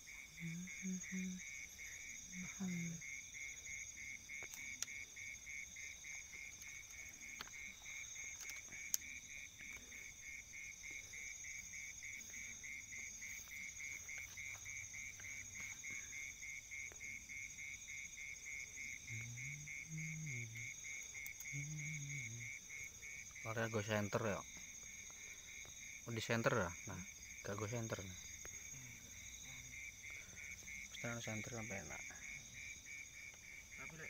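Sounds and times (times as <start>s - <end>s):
insects trilling: 0.0s - 34.0s
high insect buzzing: 0.1s - 23.4s.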